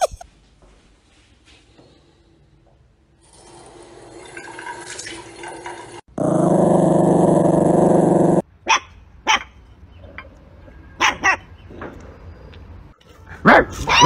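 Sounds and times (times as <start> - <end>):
dog growling: 6.2 - 8.4
dog barking: 8.7 - 9.6, 11.0 - 11.5, 13.4 - 14.0.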